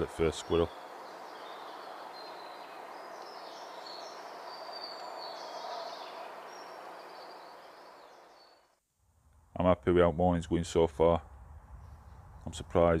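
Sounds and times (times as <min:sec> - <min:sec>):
small birds singing: 0:00.0 - 0:08.7, 0:11.7 - 0:12.8
steady background hiss: 0:00.0 - 0:13.0.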